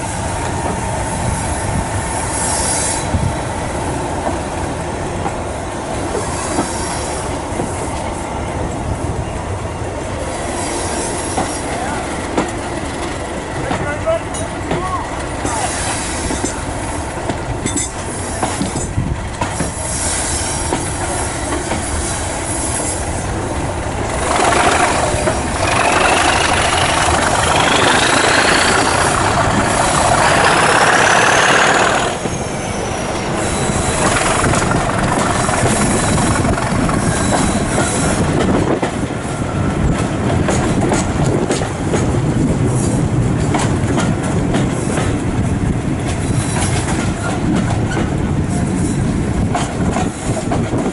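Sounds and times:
diesel locomotive engine: 0.0s - 50.9s
coach wheels clattering: 23.0s - 39.1s
turbocharger whistle: 24.2s - 32.3s.

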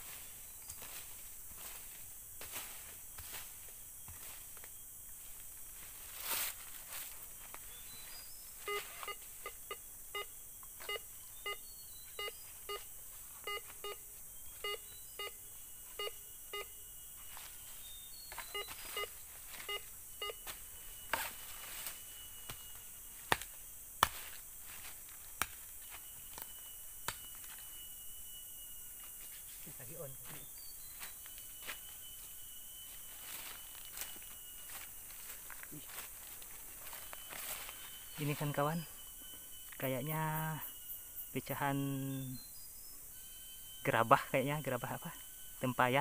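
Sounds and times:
metal detector beeping: 6.7s - 23.2s, 25.8s - 46.0s.

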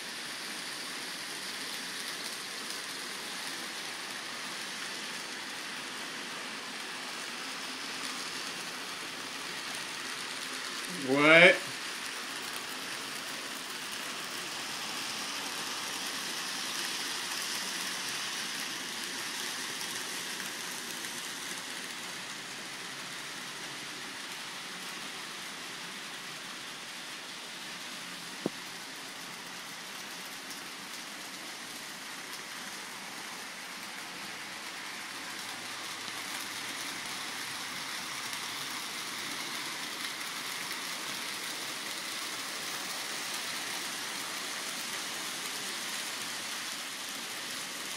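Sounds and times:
model trains whirring: 0.0s - 47.9s.

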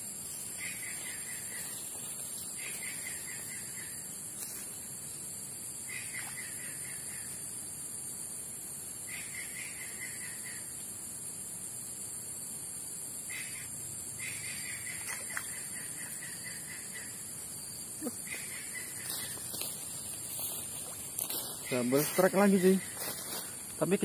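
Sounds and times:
high-pitched insect drone: 0.0s - 24.0s
rapid pulsing insect call: 0.0s - 24.0s.

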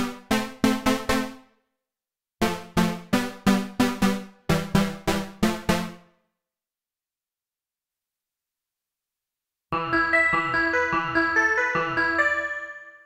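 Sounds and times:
plucked synth notes: 9.8s - 12.5s.

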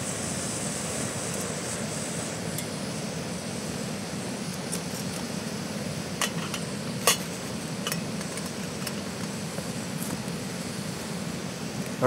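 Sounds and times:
gas stove burning: 0.0s - 12.0s
pot lid metal clinks: 6.2s - 9.0s.

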